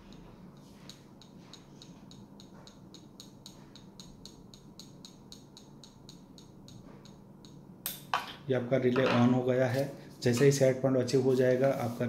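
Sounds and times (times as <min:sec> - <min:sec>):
screwdriver tip tapping sensor: 0:00.0 - 0:07.6.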